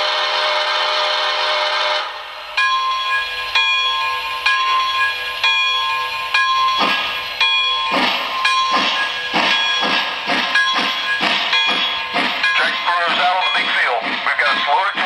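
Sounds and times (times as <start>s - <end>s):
model train steam whistle: 0.0s - 2.1s
locomotive bell ringing: 2.5s - 15.0s.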